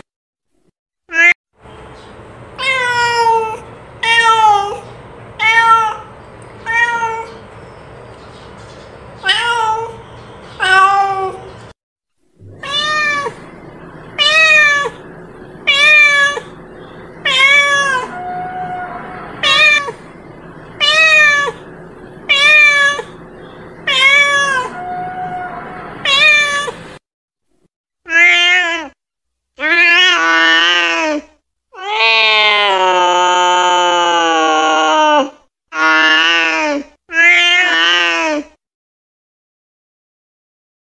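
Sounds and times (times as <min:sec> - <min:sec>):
cat meowing: 0:02.6 - 0:04.8, 0:05.4 - 0:07.4, 0:09.2 - 0:10.0, 0:10.6 - 0:11.5, 0:12.4 - 0:16.6, 0:17.2 - 0:23.2, 0:23.8 - 0:26.9, 0:37.1 - 0:38.4.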